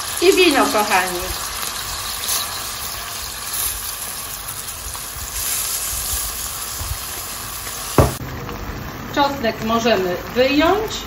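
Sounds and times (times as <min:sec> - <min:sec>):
seafood sizzling in oil: 0:00.0 - 0:11.0
wooden spoon knocking pan: 0:08.0 - 0:08.2.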